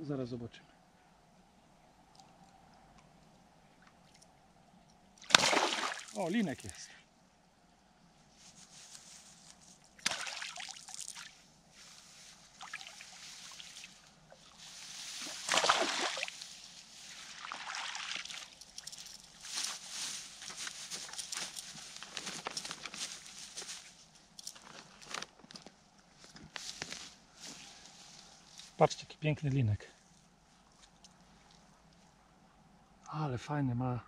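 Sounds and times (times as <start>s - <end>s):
water sloshing and splashing: 5.2s - 6.7s, 10.0s - 11.4s, 12.5s - 19.7s.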